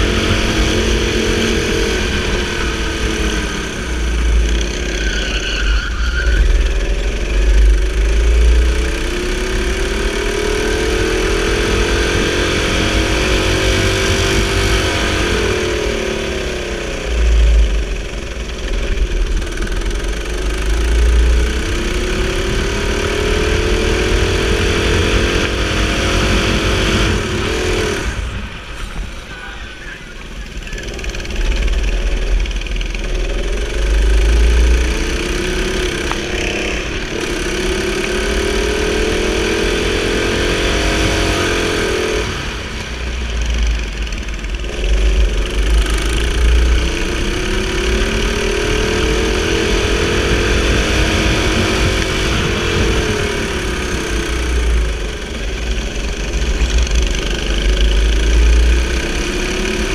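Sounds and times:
deep rumble: 0.0s - 41.4s
go-kart engine revving: 0.0s - 59.9s.

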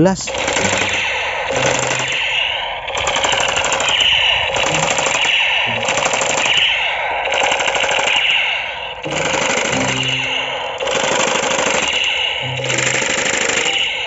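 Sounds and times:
toy gun machine-gun rattle: 0.3s - 9.8s, 10.8s - 13.9s
wavering high tone: 9.1s - 11.0s.

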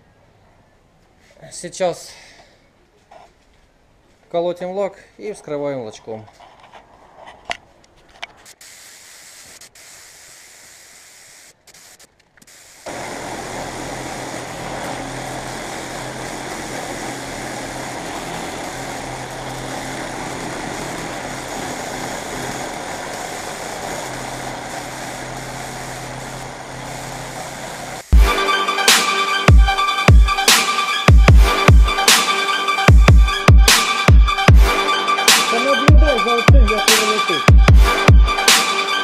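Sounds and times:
spray gun air hiss: 8.5s - 34.5s.

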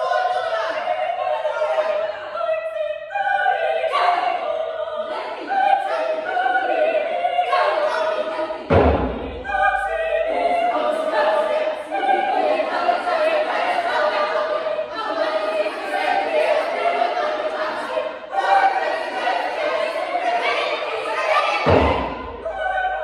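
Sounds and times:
women's choir singing: 0.0s - 23.0s
deep frame drum stroke: 8.7s - 10.0s.

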